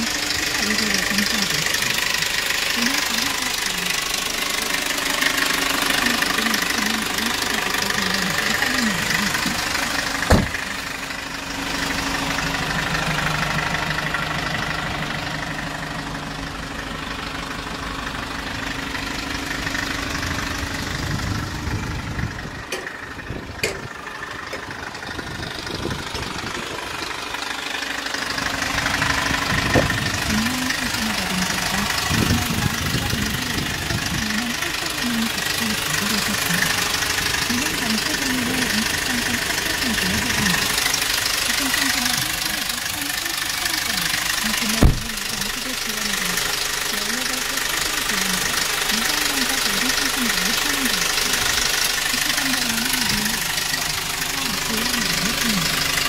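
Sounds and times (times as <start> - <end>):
diesel engine idling: 0.0 - 56.0.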